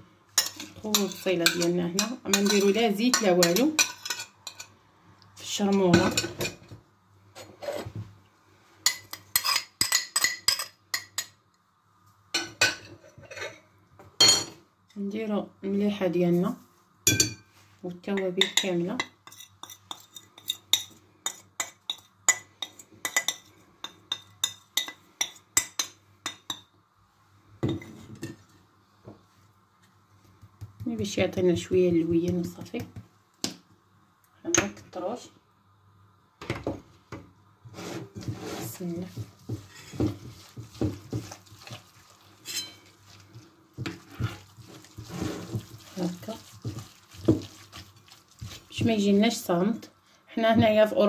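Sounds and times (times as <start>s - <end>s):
hand mixing in glass bowl: 37.8s - 49.6s
spoon clinking on glass bowl: 42.4s - 42.9s.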